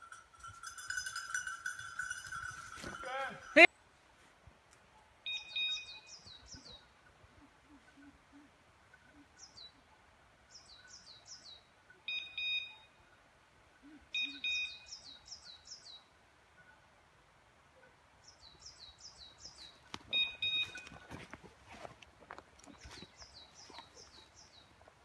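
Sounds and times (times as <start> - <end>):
dog collar beeps: 5.2 - 6.2, 12.0 - 13.0, 14.2 - 14.9, 20.1 - 21.2
songbird singing high falling notes: 5.2 - 8.5, 13.8 - 16.1
rustling: 19.6 - 25.0.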